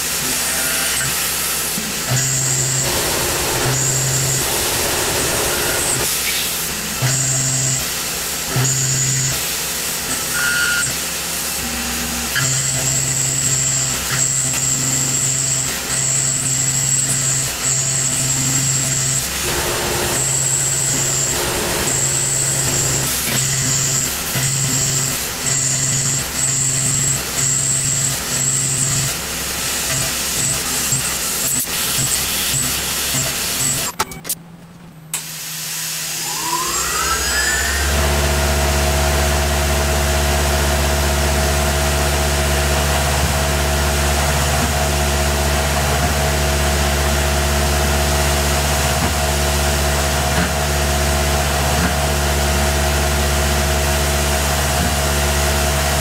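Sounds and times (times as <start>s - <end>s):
pulsing machining sound: 0.0s - 34.0s, 35.6s - 40.6s
spindle whine: 2.5s - 6.1s, 18.8s - 27.2s, 35.9s - 39.4s.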